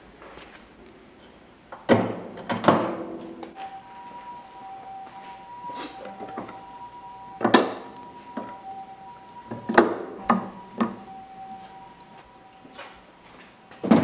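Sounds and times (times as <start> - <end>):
faint two-pitched hum: 3.1 - 14.0.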